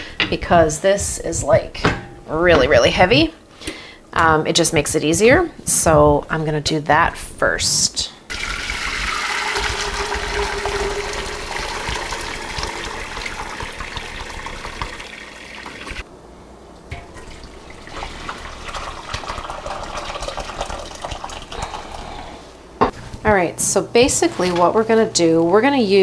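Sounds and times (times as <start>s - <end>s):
liquid pouring through strainer: 8.3s - 16.0s, 16.9s - 22.0s.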